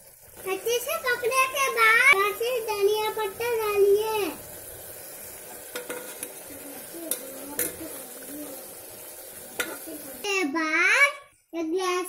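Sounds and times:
food sizzling in a pot: 0:00.0 - 0:12.0
spatula scraping a pot: 0:05.5 - 0:08.0.

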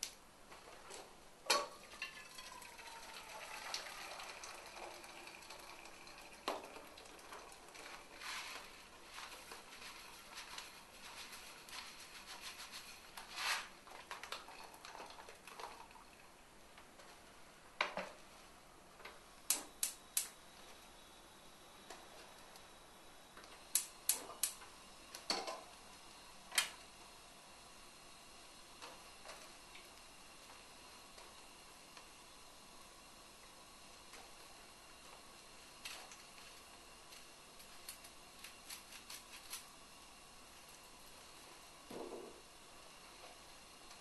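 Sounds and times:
chicken frying in a pan: 0:01.5 - 0:13.2
rustling pour into saucepan: 0:01.7 - 0:16.2.

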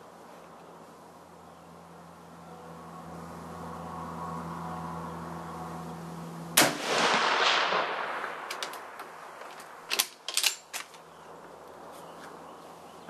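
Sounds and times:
rifle shot with echo: 0:06.6 - 0:09.0
rifle bolt metallic clicks: 0:08.4 - 0:11.0.

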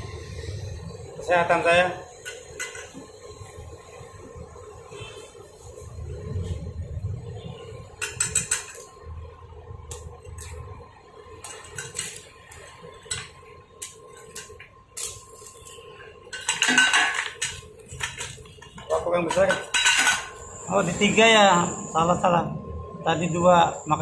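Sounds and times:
welding rod scratching on steel: 0:11.4 - 0:22.3.

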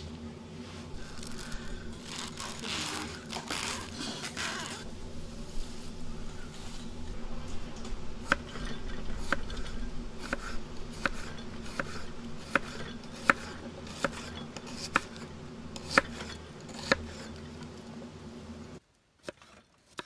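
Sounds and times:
low background noise: 0:00.0 - 0:20.0
knife chopping on wooden board: 0:08.3 - 0:09.6, 0:10.2 - 0:15.2, 0:15.8 - 0:17.4.

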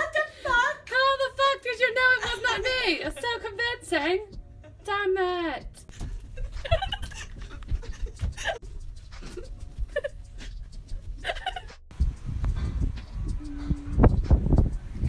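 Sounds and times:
stifled laughs: 0:05.9 - 0:08.6, 0:09.2 - 0:10.6, 0:11.2 - 0:11.8.

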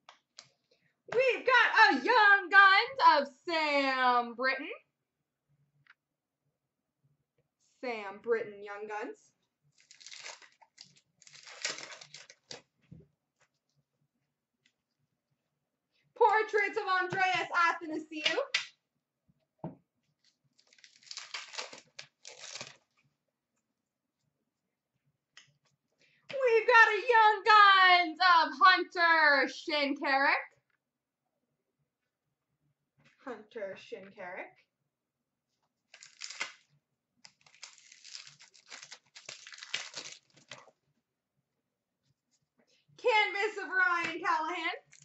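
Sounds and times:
wrapper tearing and crinkling: 0:09.8 - 0:12.7, 0:20.2 - 0:23.0, 0:35.9 - 0:40.7.

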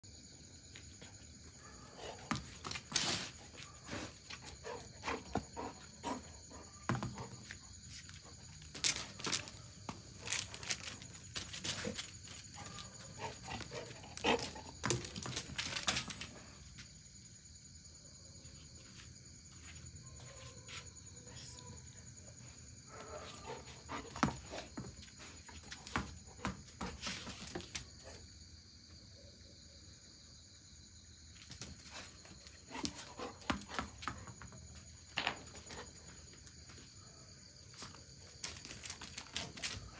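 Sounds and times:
insects chirring: 0:00.0 - 0:39.9
dog paws scrambling on concrete: 0:00.7 - 0:16.9, 0:22.9 - 0:28.3, 0:31.4 - 0:39.9.

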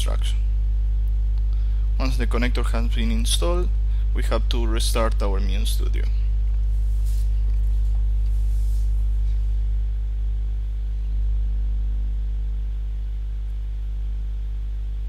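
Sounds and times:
faint electrical buzz: 0:00.0 - 0:15.0
low mains hum: 0:00.0 - 0:15.0.

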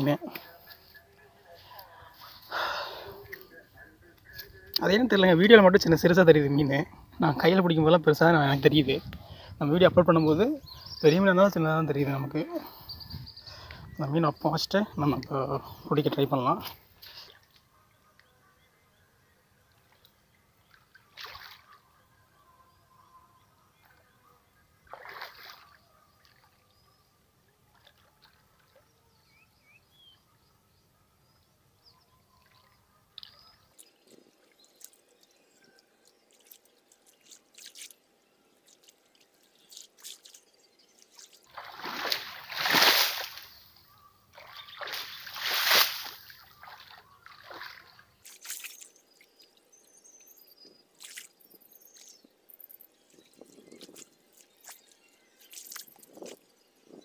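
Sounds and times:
hands splashing in muddy water: 0:21.1 - 0:21.8, 0:24.9 - 0:26.5, 0:38.6 - 0:43.6, 0:44.4 - 0:49.0, 0:53.7 - 0:56.4
loud splashes: 0:24.9 - 0:25.7, 0:41.5 - 0:43.6, 0:44.4 - 0:47.9.

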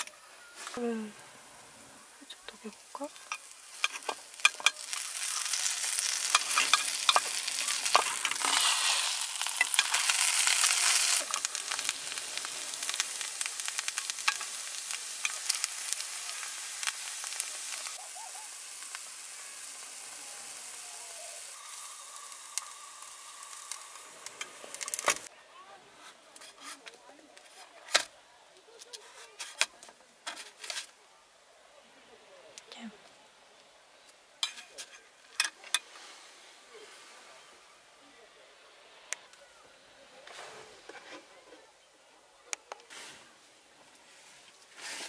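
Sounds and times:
butter sizzling in a tin: 0:00.8 - 0:25.3.

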